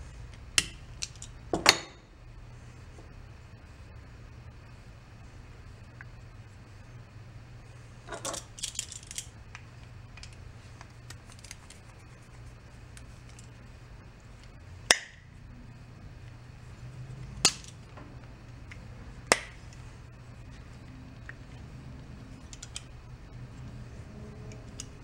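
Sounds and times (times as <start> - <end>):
metal parts clinking and rattling: 1.0 - 1.3, 8.1 - 9.3, 22.4 - 22.9.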